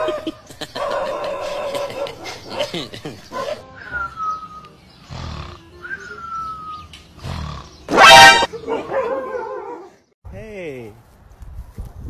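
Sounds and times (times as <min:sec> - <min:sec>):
falling whistle-like tones: 0:03.7 - 0:04.7
dog yelping: 0:07.9 - 0:09.9.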